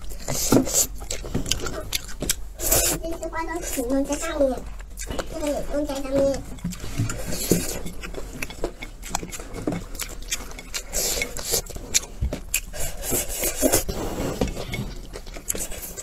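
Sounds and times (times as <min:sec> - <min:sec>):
mouth chewing: 0:00.0 - 0:16.0
person slurping noodles: 0:10.7 - 0:14.9.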